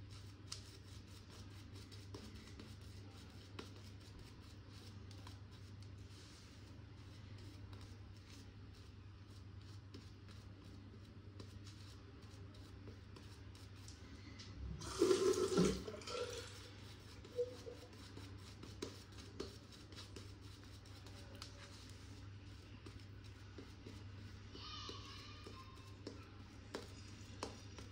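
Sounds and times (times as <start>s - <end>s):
running water: 14.8s - 16.7s.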